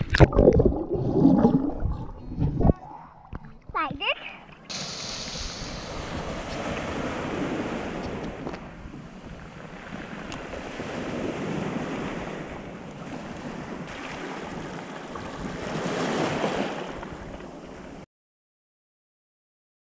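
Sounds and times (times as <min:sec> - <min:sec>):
waves washing over pebbles: 0:04.7 - 0:17.7.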